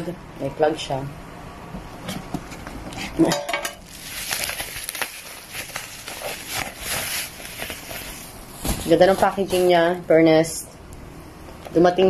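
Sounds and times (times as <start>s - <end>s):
wrapping rustling and crinkling: 3.8s - 10.1s.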